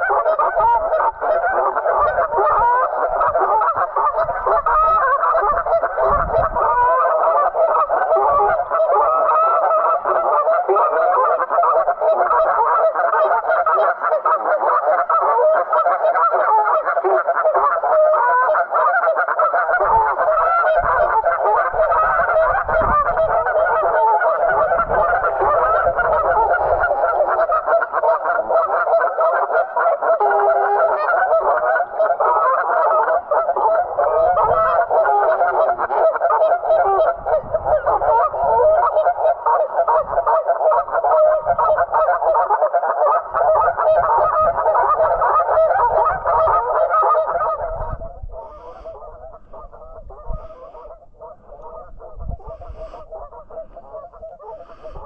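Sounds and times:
wind rumble on microphone: 0.0s - 12.8s, 19.7s - 28.6s, 33.2s - 42.5s, 43.2s - 55.0s
geese honking: 0.0s - 55.0s.

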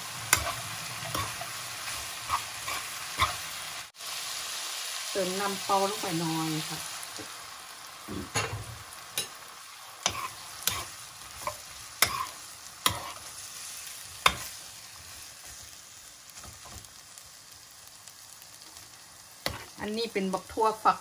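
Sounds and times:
food sizzling in frying pan: 0.0s - 21.0s
metal spoon scraping pan: 0.3s - 3.4s, 10.0s - 13.4s, 14.2s - 14.6s.

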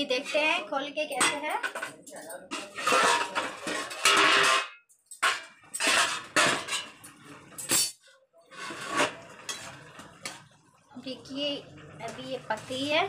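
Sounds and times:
steel pan lid clattering: 1.2s - 7.0s
spoon scraping and clinking in pan: 1.2s - 8.0s, 8.6s - 10.5s.

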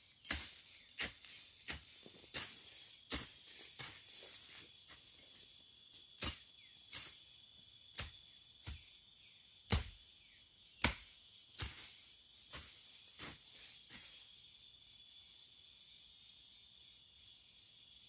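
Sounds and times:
hoe chopping into soil: 0.0s - 4.6s, 6.0s - 7.3s, 8.0s - 9.0s, 9.7s - 10.1s, 10.8s - 14.1s.

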